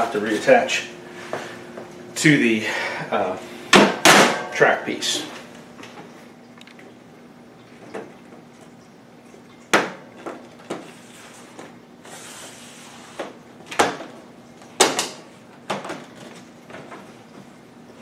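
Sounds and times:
plastic clacks and knocks: 14.8 - 17.1.

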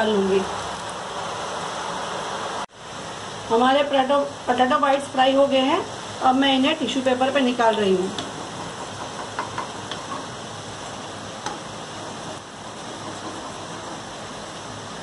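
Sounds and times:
hot oil sizzling: 0.0 - 15.0.

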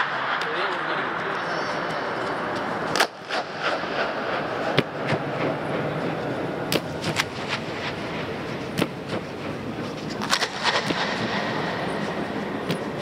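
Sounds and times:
reverberating crowd noise: 0.0 - 13.0
sharp claps echoing: 2.8 - 5.6, 10.2 - 13.0.

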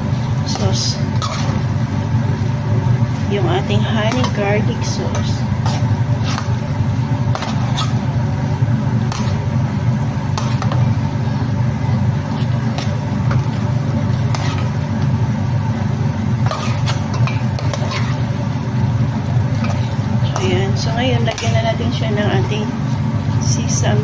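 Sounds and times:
low motor hum: 0.0 - 24.0
metal spoon scraping a pan: 0.5 - 1.6, 4.0 - 6.6, 7.3 - 8.1, 10.3 - 10.8, 12.3 - 14.8, 16.4 - 18.4.

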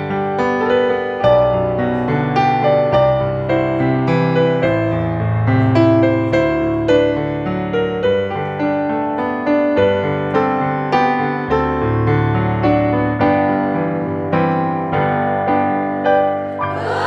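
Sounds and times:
slow piano melody: 0.0 - 17.0.

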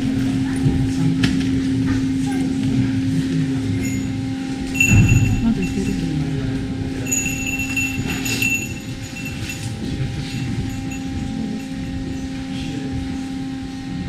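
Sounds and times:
cable car cabin rumble: 0.0 - 14.0
light rattles: 3.8 - 12.6.

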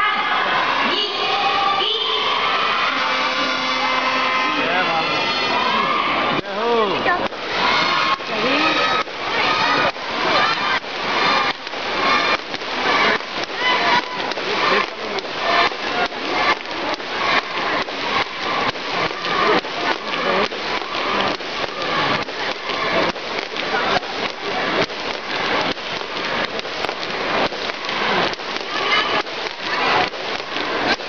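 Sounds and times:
din of voices: 3.0 - 31.0
jump rope slapping the floor: 9.8 - 31.0.

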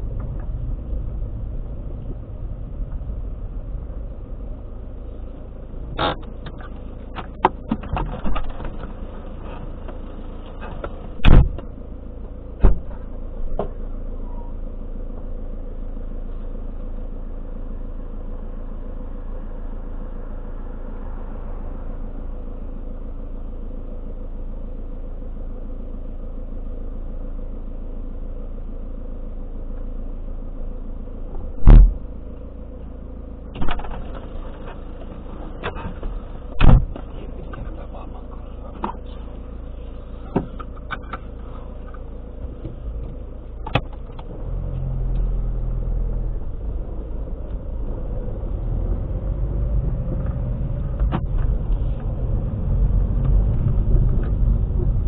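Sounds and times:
car engine idling: 0.0 - 55.0
road noise: 0.0 - 55.0
loud thumps: 11.2 - 11.8, 12.6 - 13.8, 31.4 - 32.2, 35.6 - 37.1.

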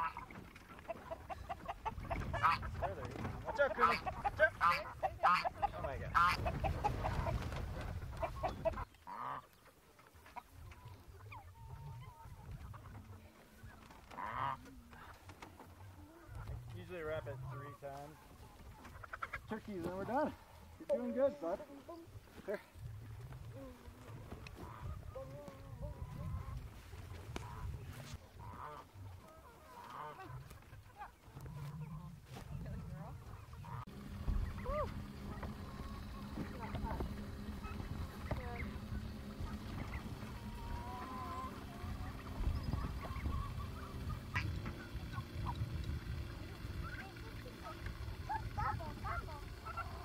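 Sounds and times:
hens clucking and squawking: 0.0 - 50.0
low steady rumble: 21.7 - 50.0.

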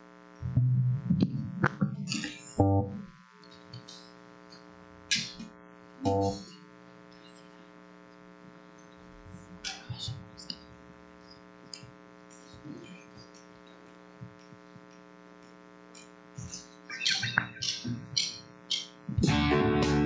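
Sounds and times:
electrical hum: 0.0 - 20.0
guitar strumming: 2.6 - 3.0, 6.0 - 6.5, 19.2 - 20.0
faint ticks and hisses: 6.4 - 18.8.

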